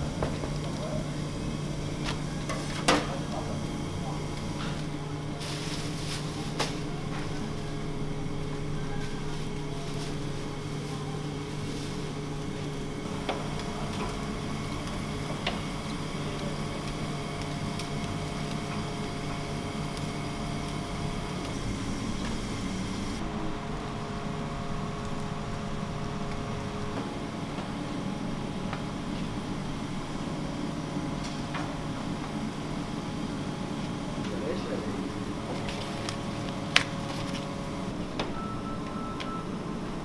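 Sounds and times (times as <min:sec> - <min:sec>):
kitchen machinery humming: 0:00.0 - 0:40.0.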